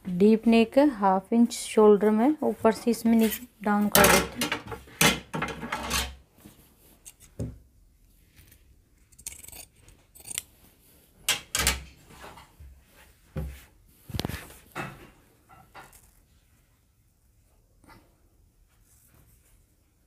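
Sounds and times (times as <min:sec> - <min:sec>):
cloth rustling: 0:12.0 - 0:14.8, 0:15.8 - 0:20.0.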